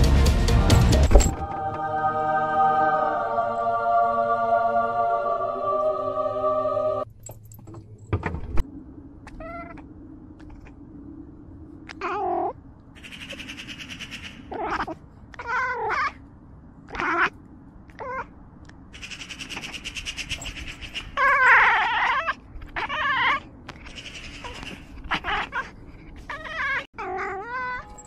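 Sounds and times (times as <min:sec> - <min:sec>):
steady low hum: 0:01.2 - 0:15.4
cat meowing: 0:14.5 - 0:16.2, 0:16.9 - 0:17.4, 0:18.0 - 0:18.3, 0:26.3 - 0:28.0.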